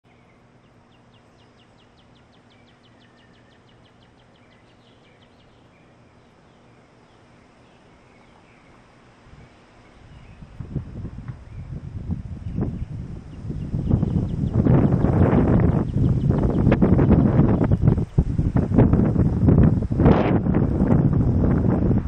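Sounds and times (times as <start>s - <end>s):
small bird chipping: 0.0s - 11.8s, 12.4s - 18.3s
low steady hum: 0.0s - 22.0s
wind rumble: 8.6s - 22.0s.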